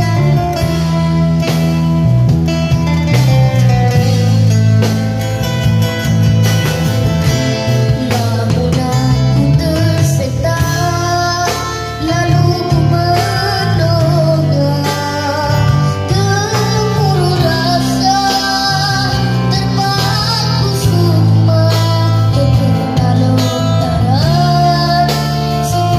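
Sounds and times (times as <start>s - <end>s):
acoustic guitar: 0.0s - 25.9s
drum kit: 0.0s - 25.9s
electric bass guitar: 0.0s - 25.9s
boy singing into microphone: 7.3s - 25.9s.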